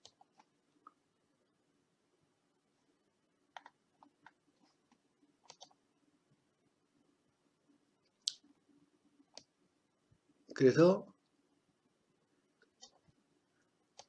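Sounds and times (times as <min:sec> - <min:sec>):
faint computer mouse clicks: 0:05.4 - 0:05.8.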